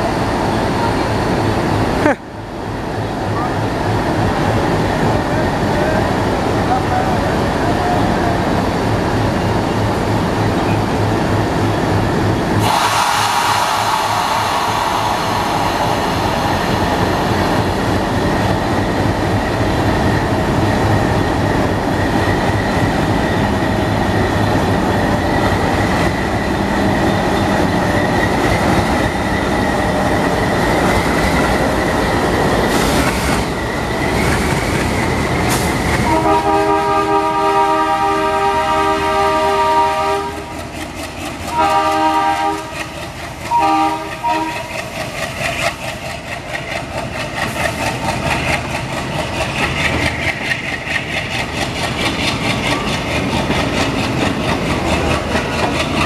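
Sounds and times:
diesel locomotive running: 0.0 - 56.0
train horn chord: 36.1 - 40.5, 41.5 - 42.8, 43.5 - 44.7.

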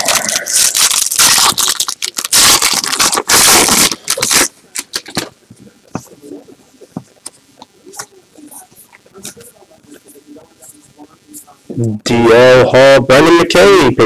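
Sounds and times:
foil wrapper crinkling and tearing: 0.0 - 5.3.

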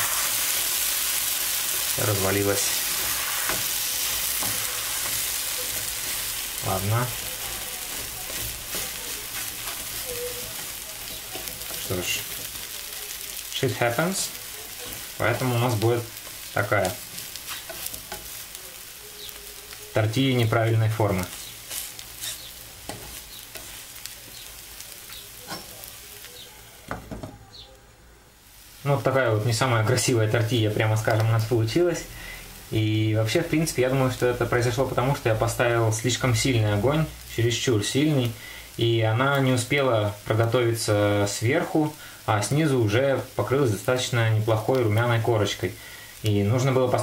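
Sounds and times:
omelette sizzling in frying pan: 0.0 - 27.7, 28.3 - 47.0
spatulas scraping and tapping pan: 2.2 - 13.4, 14.1 - 18.6, 21.2 - 25.9.

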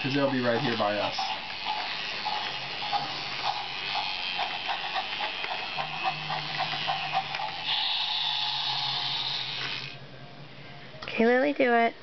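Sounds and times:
high steady tone: 0.0 - 10.0
toy train motor buzzing: 0.0 - 10.0.

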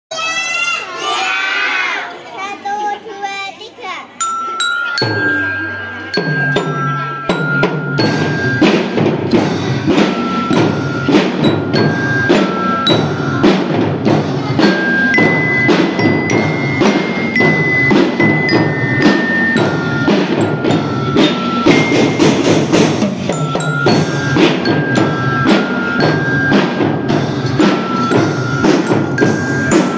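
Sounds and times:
glockenspiel melody: 4.2 - 29.9
marching drums beating: 6.1 - 29.9.

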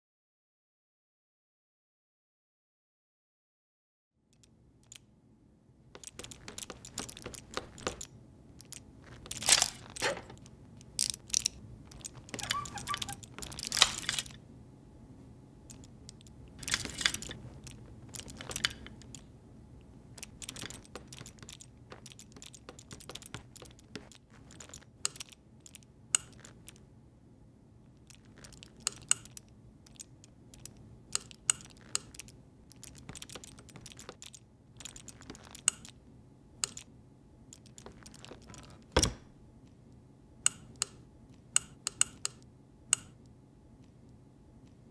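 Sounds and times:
faint steady hum: 4.2 - 44.9
small mechanical clicks and ticks: 4.3 - 5.1, 6.0 - 14.4, 15.6 - 19.3, 20.1 - 26.9, 27.9 - 36.0, 36.6 - 36.9, 37.5 - 39.1, 40.4 - 44.0.

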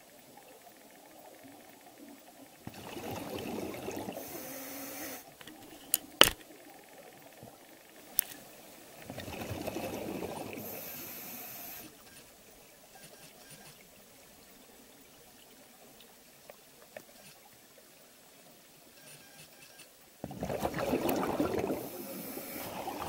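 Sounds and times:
exhaled bubbles burbling: 2.7 - 4.2, 9.0 - 10.6, 20.2 - 23.0
brief hiss: 10.6 - 12.2.

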